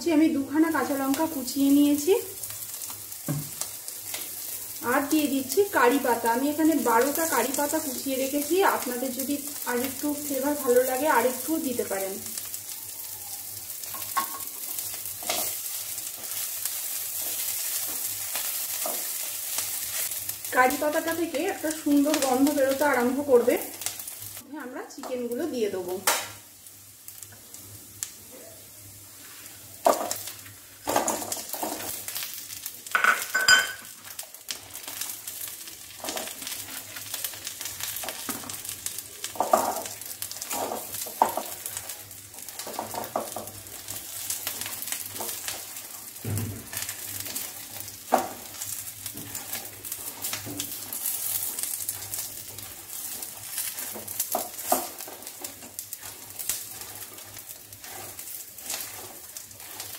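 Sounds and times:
oil sizzling: 0.0 - 59.9
spatula scraping pan: 46.6 - 59.9.

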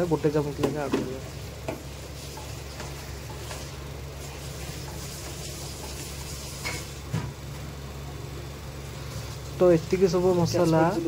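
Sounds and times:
steady low hum: 0.0 - 11.0
spices sizzling in a pan: 1.2 - 7.1.

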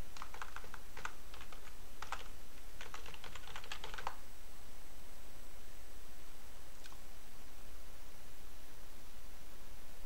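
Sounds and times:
keyboard keys clicking: 0.2 - 4.2.

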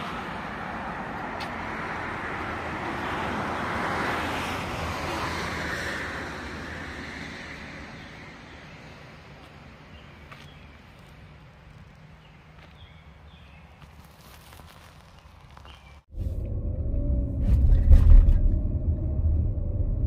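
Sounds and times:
car passing on road: 0.0 - 10.0.

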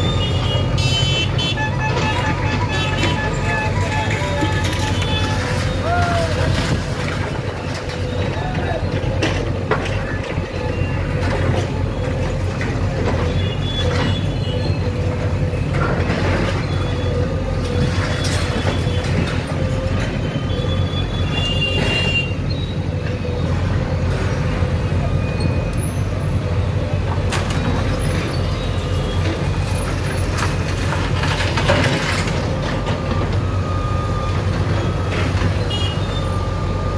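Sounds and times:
diesel engine running under load: 0.0 - 36.9.

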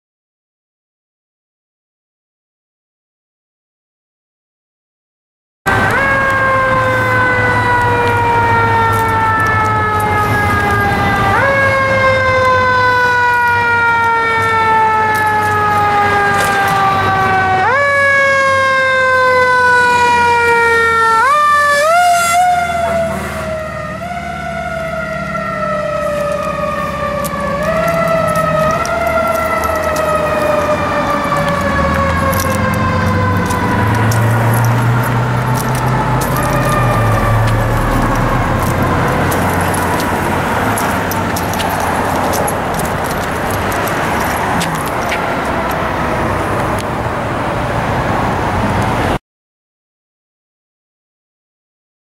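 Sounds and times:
siren yelps: 5.7 - 46.6
fire engine siren wailing: 5.7 - 49.2.

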